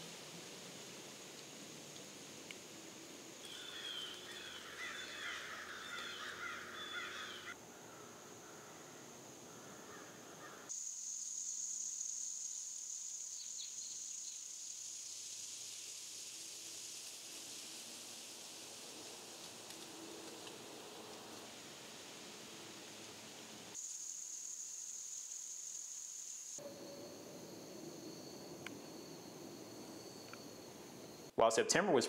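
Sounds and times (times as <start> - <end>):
high-pitched hiss: 0.0 - 32.0
bird calls: 3.4 - 8.9.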